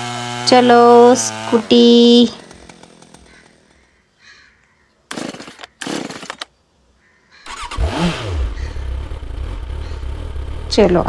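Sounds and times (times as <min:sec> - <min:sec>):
motorbike engine starting and running: 0:00.0 - 0:03.9, 0:05.1 - 0:06.5, 0:07.5 - 0:11.0.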